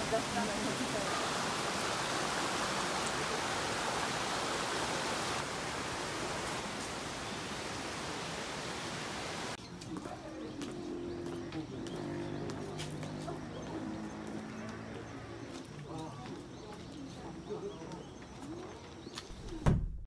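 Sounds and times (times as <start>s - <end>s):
steady rushing hiss: 0.0s - 9.6s.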